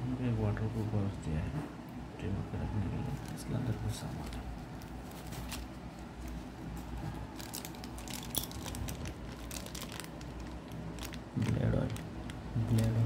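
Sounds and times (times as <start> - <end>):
plastic bag crinkling: 3.2 - 6.4, 7.2 - 13.0.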